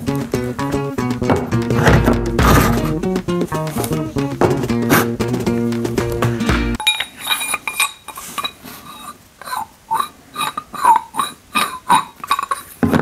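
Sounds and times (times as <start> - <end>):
light metallic clinks: 6.8 - 8.6
squeaky metal scrapes: 6.8 - 12.8.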